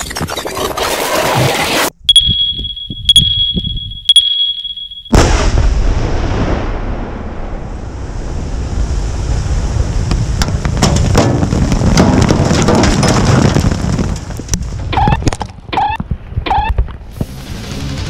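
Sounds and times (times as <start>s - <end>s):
explosion blast: 5.1s - 10.1s
dirt and stones falling: 10.1s - 15.6s.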